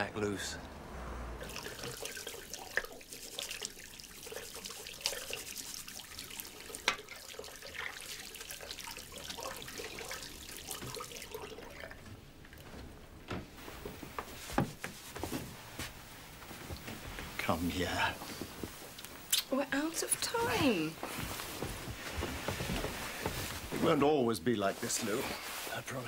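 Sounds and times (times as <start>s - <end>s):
hands washing with splashing: 1.4s - 12.8s
tap water running into basin: 1.4s - 12.8s.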